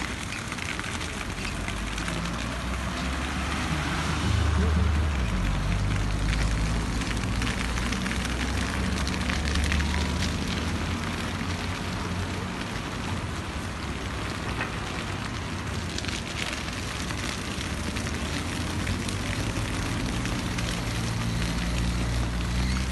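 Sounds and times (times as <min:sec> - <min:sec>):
grass fire crackling: 0:00.0 - 0:22.9.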